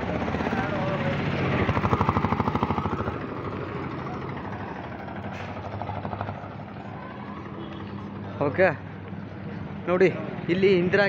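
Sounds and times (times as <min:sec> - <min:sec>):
auto-rickshaw engine puttering: 0:00.0 - 0:08.7
low traffic hum: 0:00.0 - 0:11.0.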